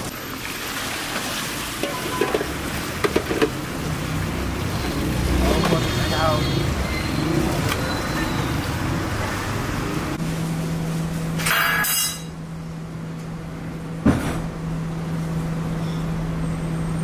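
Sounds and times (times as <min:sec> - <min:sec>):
hose water splashing into steel bowl: 0:00.0 - 0:05.9.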